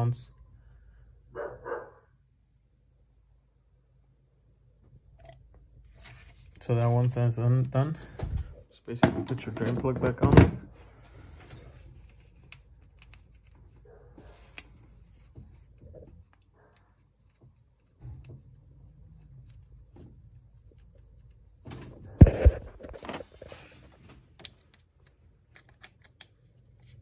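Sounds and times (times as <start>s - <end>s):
faint clicks and scrapes: 10.8s - 27.0s.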